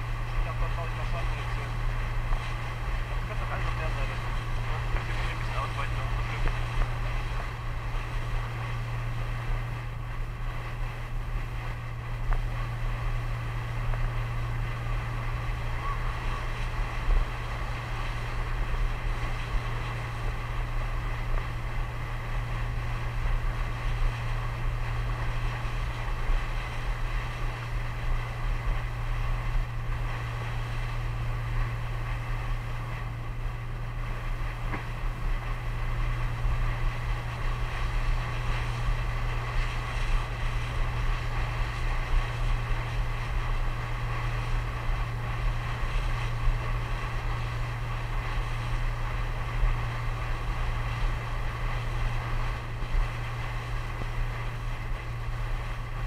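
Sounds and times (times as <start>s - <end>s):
boat engine humming: 0.0s - 56.0s
water rushing past hull: 0.0s - 56.0s.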